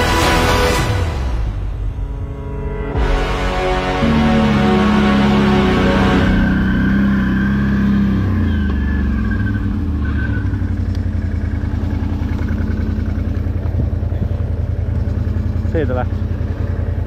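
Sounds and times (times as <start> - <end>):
background music: 0.0 - 8.0
atv engine idling: 4.0 - 17.0.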